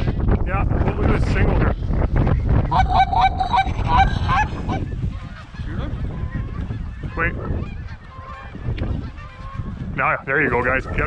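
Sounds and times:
wind rumbling on microphone: 0.0 - 11.0
geese honking: 2.7 - 9.7.

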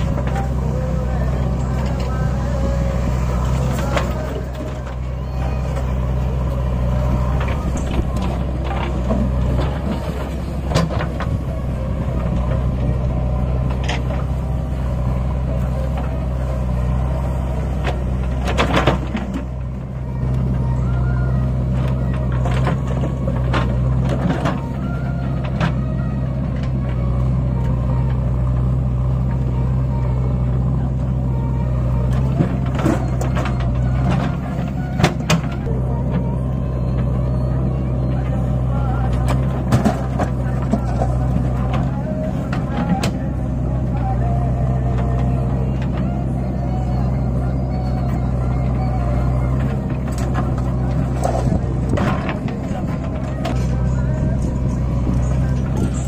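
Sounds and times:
diesel engines running: 0.0 - 56.0
knocks and clanks: 17.8 - 19.6, 39.1 - 43.3, 49.6 - 56.0.

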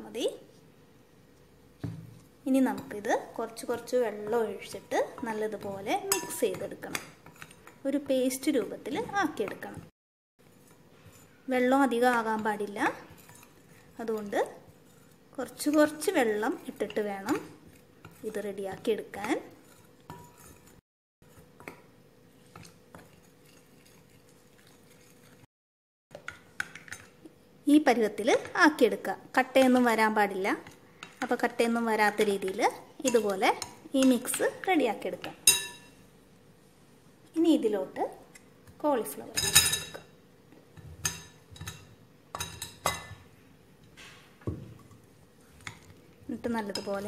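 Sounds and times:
hand mixing batter in bowl: 2.2 - 25.5
crockery and spoon clinking: 35.4 - 36.0.

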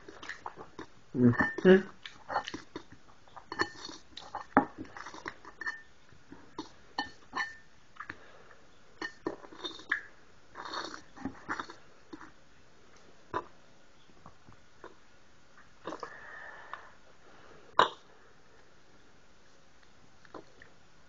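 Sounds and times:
chewing: 0.0 - 0.9, 1.9 - 5.8, 9.0 - 12.3, 19.8 - 20.7
fork scraping ceramic bowl: 3.5 - 5.9.

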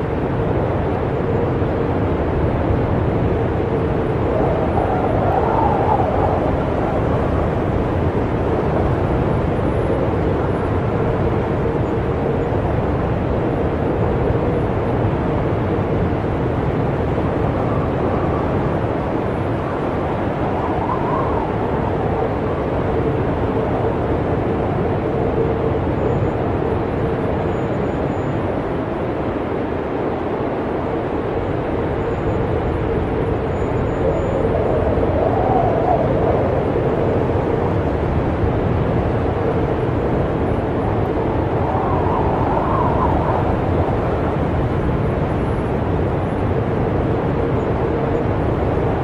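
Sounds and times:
snowstorm wind rushing: 0.0 - 27.4, 28.6 - 49.0
faint wavering whistle: 41.6 - 43.9.

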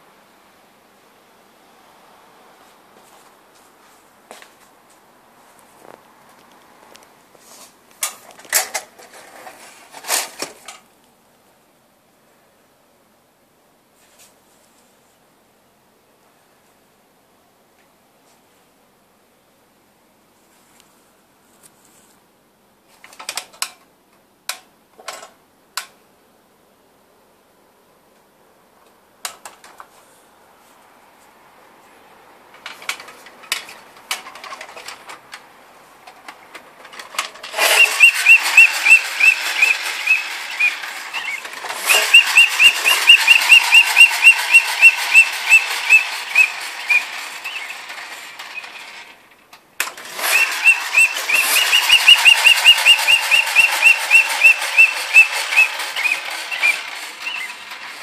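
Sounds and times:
toy flywheel motor whirring: 37.0 - 49.2, 49.8 - 58.0
toy whistle chirping hoot: 37.6 - 47.8, 50.3 - 57.6.

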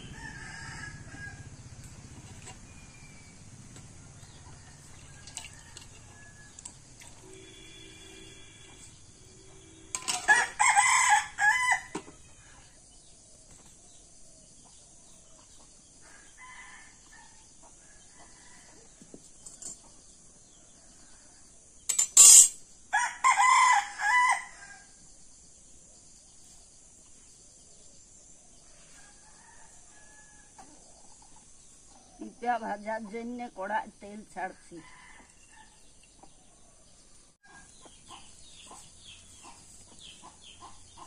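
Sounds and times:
rooster crowing: 0.0 - 1.6, 4.4 - 12.4, 22.9 - 24.9, 34.8 - 35.8.

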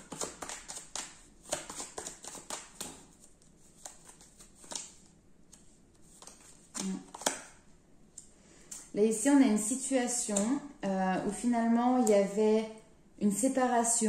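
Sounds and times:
cards flicking and tapping: 0.0 - 7.6
cards sliding rustle: 0.0 - 7.6.

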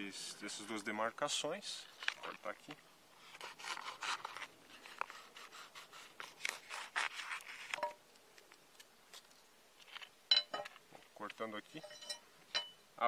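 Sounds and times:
knife cutting crinkling foil: 3.2 - 10.1.

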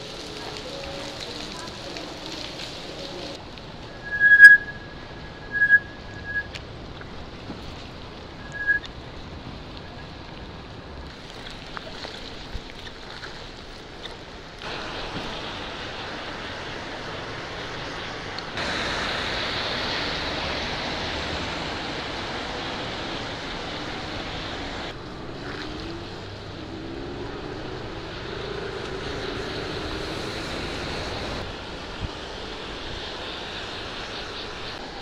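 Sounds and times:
tyres hissing on wet road: 0.0 - 6.4, 7.2 - 35.0
faint hum rising in pitch: 3.9 - 6.6.

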